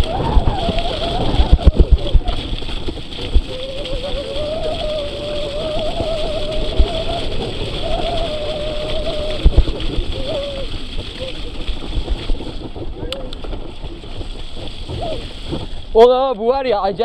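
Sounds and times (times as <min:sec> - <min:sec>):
bike rattling over bumps: 0:00.0 - 0:17.0
wavering mid-pitched whine: 0:00.0 - 0:17.0
wind noise: 0:00.0 - 0:17.0.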